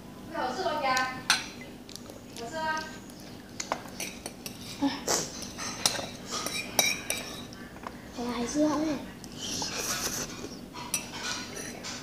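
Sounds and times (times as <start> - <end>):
fork scraping a plate: 4.0 - 7.6, 9.4 - 12.0.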